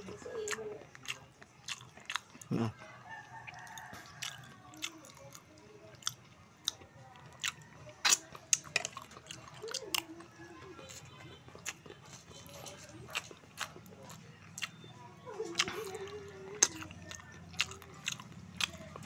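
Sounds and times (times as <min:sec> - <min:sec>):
person chewing and eating: 0:00.0 - 0:19.0
rooster crowing: 0:02.7 - 0:04.7.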